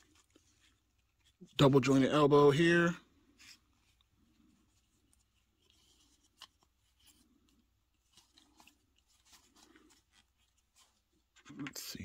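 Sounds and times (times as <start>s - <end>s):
soft cloth rustles: 2.8s - 11.4s.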